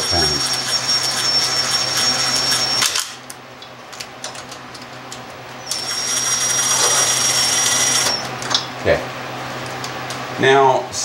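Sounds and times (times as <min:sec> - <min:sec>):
cordless driver whining: 0:00.0 - 0:03.2, 0:05.7 - 0:08.3.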